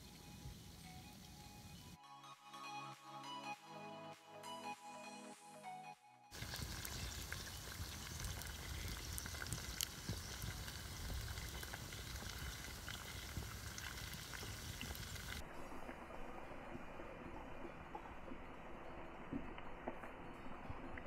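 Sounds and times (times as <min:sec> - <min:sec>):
fish sizzling in hot oil: 0:06.3 - 0:21.0
oil popping and crackling: 0:06.3 - 0:21.0.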